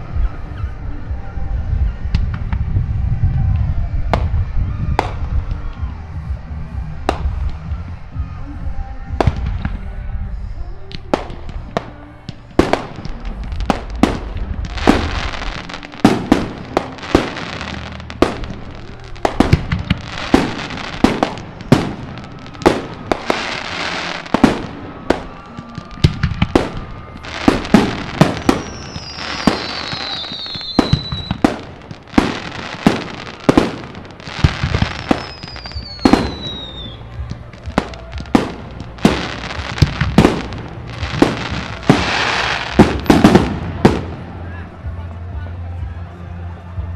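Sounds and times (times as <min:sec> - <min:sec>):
fireworks bursting and crackling: 0:00.0 - 0:45.0
firework whistle gliding down: 0:12.0 - 0:44.1.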